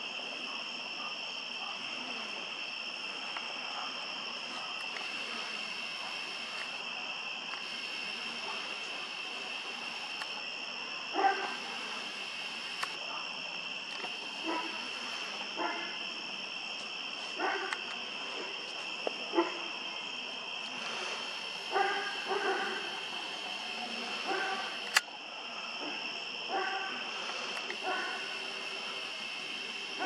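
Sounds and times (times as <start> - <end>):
insects droning: 0.0 - 30.0
dog barking: 11.1 - 12.1, 14.3 - 16.0, 17.4 - 17.8, 19.3 - 19.8, 21.6 - 23.1, 23.7 - 24.8, 25.8 - 27.1, 27.8 - 28.9
sharp clicks: 12.7 - 13.0, 24.8 - 25.1.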